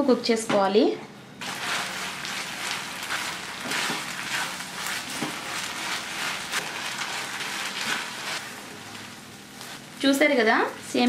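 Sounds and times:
spatula scraping a pan: 0:01.4 - 0:09.8
syrup sizzling in a pan: 0:01.4 - 0:10.0.

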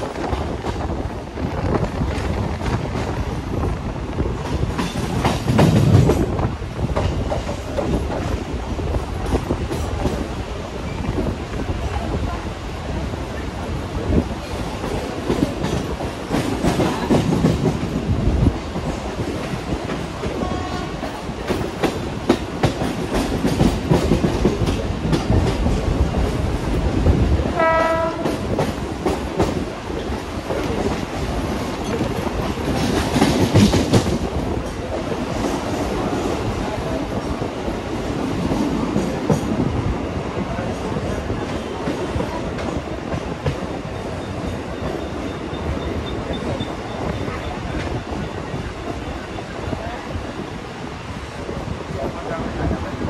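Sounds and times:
train rumbling on rails: 0:00.0 - 0:53.0
train horn: 0:20.4 - 0:21.0, 0:27.5 - 0:28.5.

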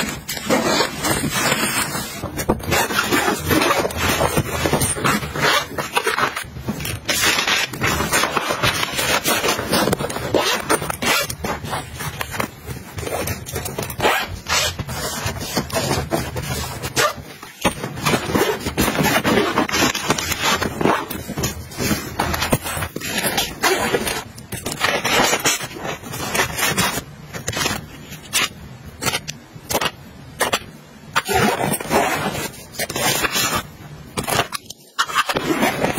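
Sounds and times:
zipper rasping: 0:00.0 - 0:29.2, 0:31.2 - 0:35.9
scraping and rustling of packets: 0:00.0 - 0:35.9.

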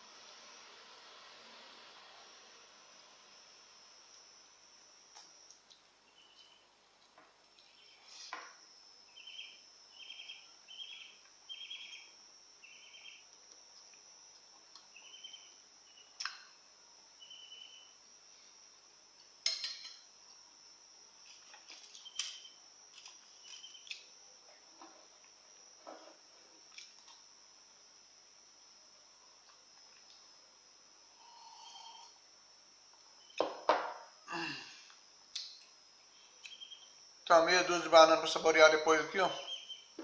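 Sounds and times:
high-pitched whine: 0:07.6 - 0:29.4, 0:30.0 - 0:40.0
spoon clinking on dish: 0:19.4 - 0:20.0.

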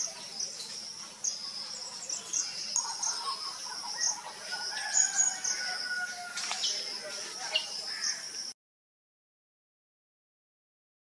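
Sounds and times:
birds chirping and calling: 0:00.0 - 0:08.5.

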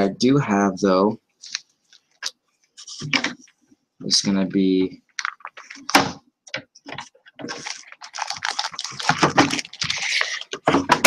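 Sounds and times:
paper rustling: 0:06.9 - 0:10.6.

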